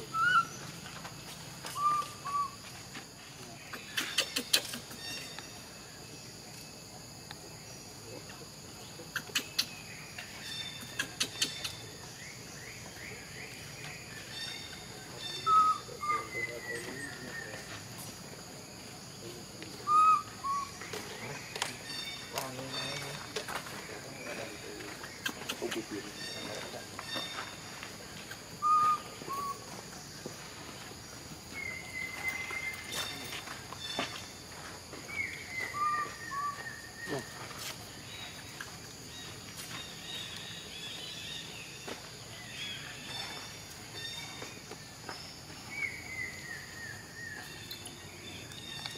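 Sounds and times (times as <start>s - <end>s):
whistled animal calls: 0.0s - 0.5s, 1.7s - 2.6s, 15.2s - 17.6s, 19.8s - 21.1s, 28.6s - 29.7s, 35.3s - 37.5s
bird chirps: 0.0s - 2.8s, 7.6s - 18.2s, 19.1s - 30.8s, 31.5s - 34.4s, 35.0s - 48.9s.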